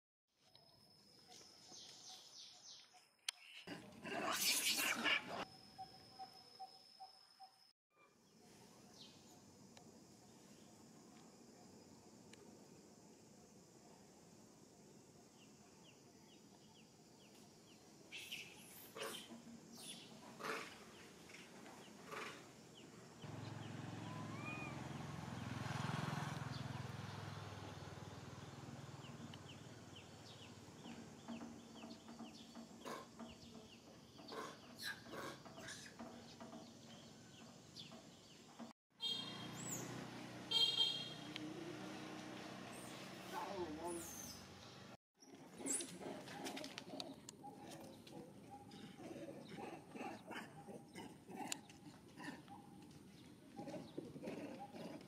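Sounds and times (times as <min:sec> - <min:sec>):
bird chirps: 0:05.4 - 0:07.7, 0:23.2 - 0:24.8
vehicle passing: 0:23.3 - 0:30.4, 0:39.3 - 0:43.8
high-pitched calls: 0:24.0 - 0:24.8.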